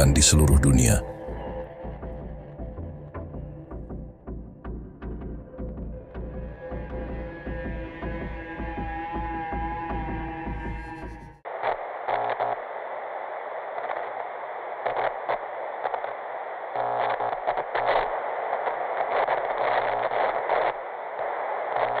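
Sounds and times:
glitchy crackles: 11.5s - 22.0s.

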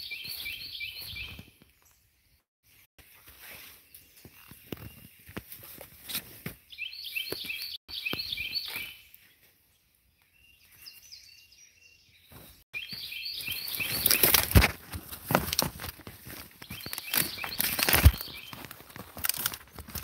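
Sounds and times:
footsteps crunching on dry branches: 0.0s - 2.0s, 3.0s - 9.4s, 12.3s - 20.0s
songbird chirping: 0.0s - 14.8s, 16.2s - 19.5s.

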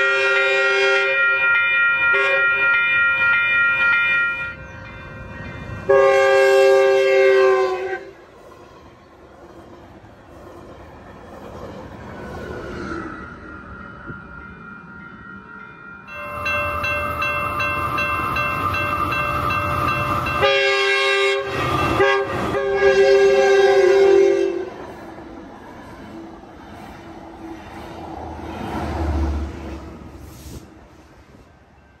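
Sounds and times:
train horn blasts: 0.0s - 4.6s, 5.9s - 8.2s, 19.5s - 24.8s
railroad crossing bells: 0.0s - 8.4s, 13.0s - 29.7s, 31.3s - 32.0s
train rumbling past: 0.0s - 32.0s.

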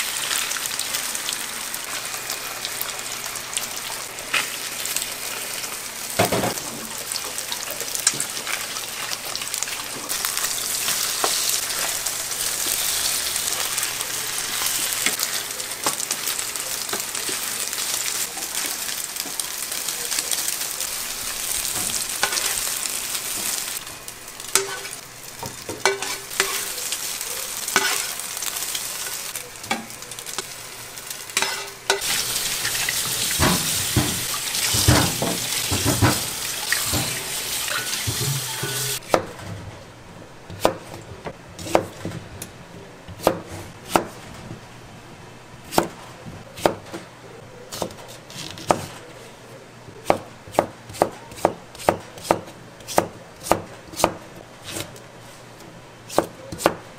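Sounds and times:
food sizzling in a pan: 0.0s - 39.0s
utensil scraping a pan: 25.8s - 26.8s, 27.7s - 28.2s, 31.4s - 39.0s
knife chopping on cutting board: 43.2s - 44.2s, 50.0s - 54.9s, 56.1s - 56.8s.

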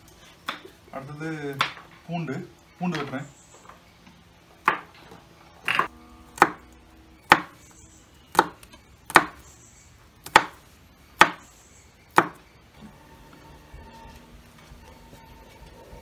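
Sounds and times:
knife chopping on wooden board: 4.6s - 4.9s, 5.7s - 6.6s, 7.3s - 7.6s, 8.3s - 9.4s, 10.2s - 10.6s, 11.2s - 11.4s, 12.1s - 12.4s.

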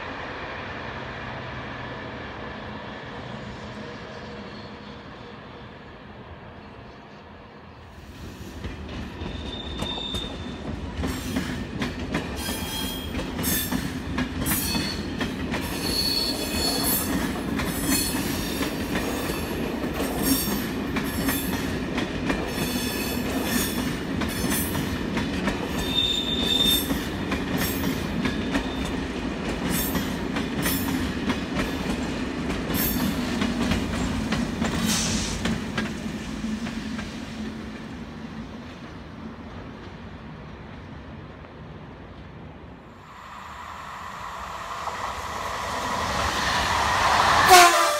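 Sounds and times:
train wheels clicking over rail joints: 8.3s - 38.0s
high-pitched wheel squeals: 9.3s - 10.6s, 15.8s - 17.0s, 25.8s - 26.9s.

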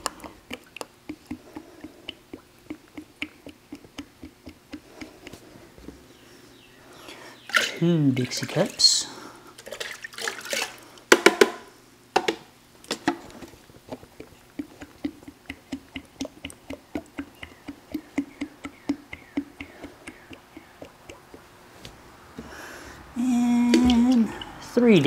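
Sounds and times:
liquid glugging from pail: 0.0s - 5.5s, 7.4s - 11.0s, 12.9s - 21.5s
knocks and water splashes: 9.6s - 11.6s, 23.6s - 24.6s.

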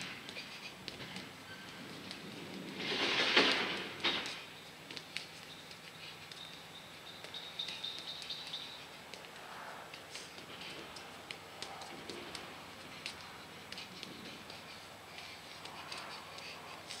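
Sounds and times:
faint bird chirps: 4.4s - 9.0s.

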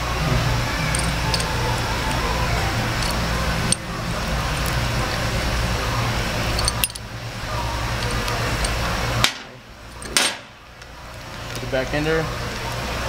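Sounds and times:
low workshop hum: 0.0s - 13.0s
metallic clinks of nut and wrench: 0.9s - 2.2s, 3.0s - 3.8s, 6.6s - 7.0s.

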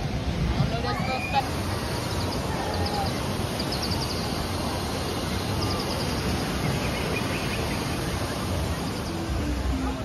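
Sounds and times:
steady rushing noise: 0.0s - 10.0s
small bird chirping trills: 1.9s - 4.6s.

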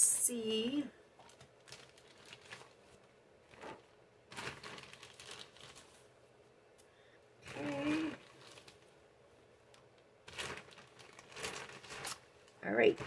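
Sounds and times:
packaging rustling: 1.2s - 6.1s, 7.4s - 9.0s, 10.2s - 13.0s.

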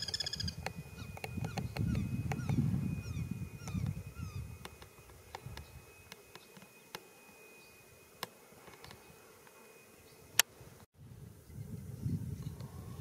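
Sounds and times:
high-pitched insect buzz: 0.0s - 10.4s.

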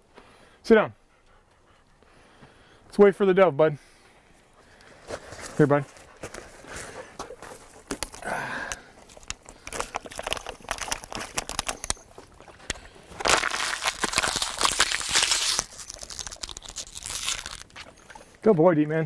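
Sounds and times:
plastic bottle crinkling: 7.4s - 18.3s.

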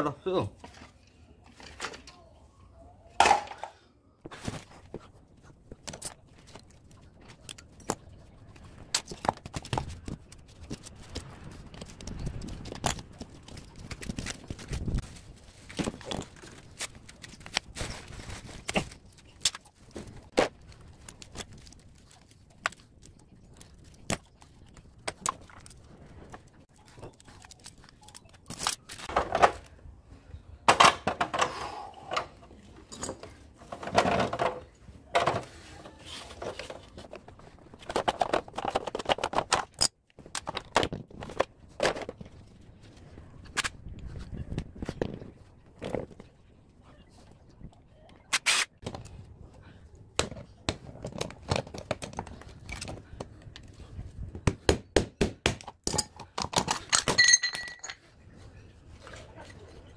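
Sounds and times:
metal and plastic parts rattling: 36.3s - 42.4s.

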